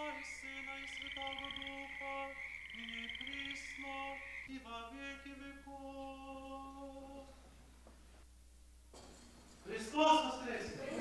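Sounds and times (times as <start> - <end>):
steady high trill: 0.0 - 4.5
congregation singing a chant: 0.0 - 5.6.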